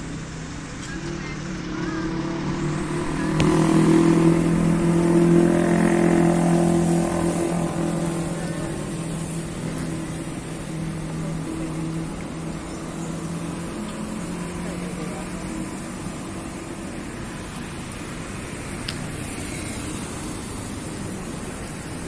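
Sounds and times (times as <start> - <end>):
vehicle engine passing: 0.0 - 22.0.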